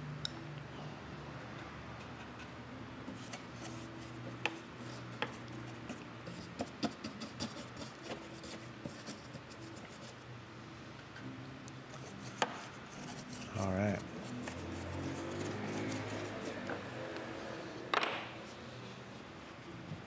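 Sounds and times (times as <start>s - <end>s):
paintbrush rubbing on wood: 12.2s - 16.7s.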